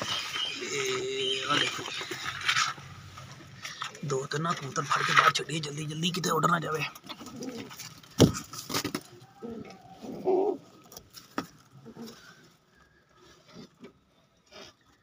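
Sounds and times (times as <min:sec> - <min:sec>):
pigeons cooing: 0:07.1 - 0:07.9, 0:09.1 - 0:10.9, 0:11.8 - 0:12.6.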